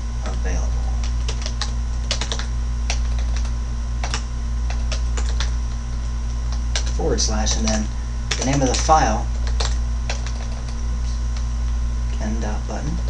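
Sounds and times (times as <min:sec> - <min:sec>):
low electrical hum: 0:00.0 - 0:13.0
computer keyboard typing: 0:01.0 - 0:05.6, 0:06.5 - 0:10.8.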